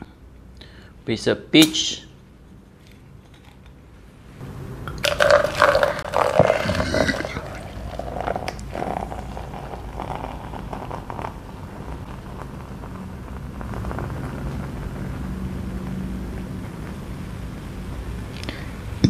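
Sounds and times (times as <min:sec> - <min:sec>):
drink glugging from bottle: 0:04.9 - 0:11.3
foam fizzing in cup: 0:05.0 - 0:17.4.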